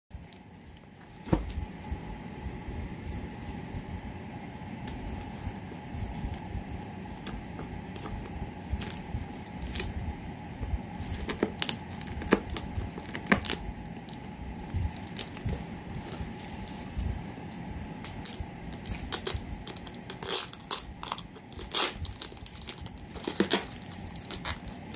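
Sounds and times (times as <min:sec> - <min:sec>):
steady low hum: 0:00.1 - 0:24.9
envelope crinkling and rustling: 0:07.2 - 0:10.0, 0:11.0 - 0:24.9.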